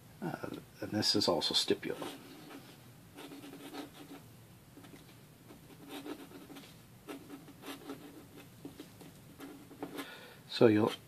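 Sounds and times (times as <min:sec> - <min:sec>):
pen nib scratching paper: 0:02.0 - 0:04.2, 0:04.8 - 0:10.1.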